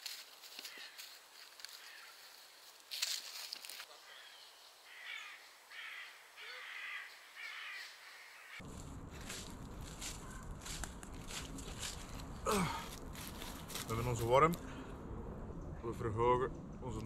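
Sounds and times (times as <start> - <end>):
short rustle: 0.0 - 3.9
bird cawing harshly: 1.8 - 2.2, 4.1 - 8.6
low rumbling noise: 8.6 - 17.0.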